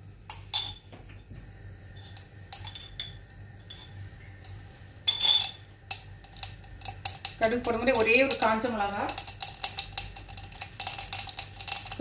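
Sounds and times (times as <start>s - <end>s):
metal spoon clinking on pan: 0.3s - 0.8s, 2.6s - 3.9s, 5.1s - 5.6s.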